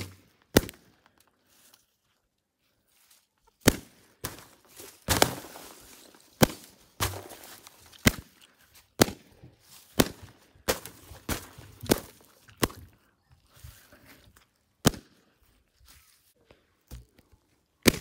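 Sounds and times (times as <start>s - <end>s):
balloons bursting: 3.6s - 8.3s, 9.9s - 12.7s.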